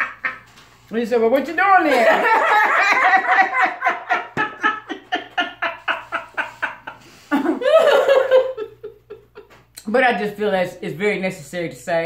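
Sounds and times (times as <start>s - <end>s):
women laughing: 0.0s - 0.6s, 1.9s - 9.6s.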